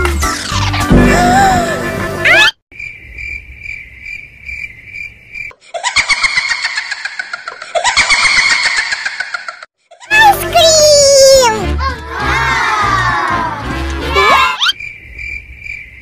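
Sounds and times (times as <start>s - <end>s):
loud dense sound effect: 0.9s - 2.4s.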